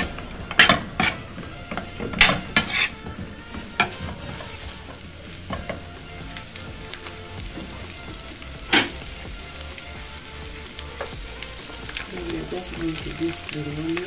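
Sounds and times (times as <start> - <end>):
utensil scraping and knocking pan: 0.0 - 5.9
chicken sizzling in oil: 0.0 - 14.0.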